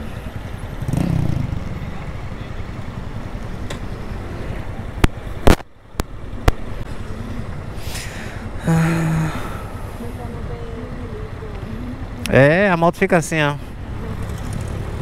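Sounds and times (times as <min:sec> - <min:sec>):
motorcycle engine running: 0:00.0 - 0:03.5.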